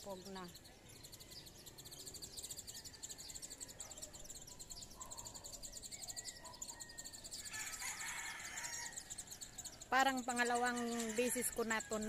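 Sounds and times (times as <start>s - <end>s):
bird calls: 0.0s - 12.0s
insects trilling: 0.0s - 12.0s.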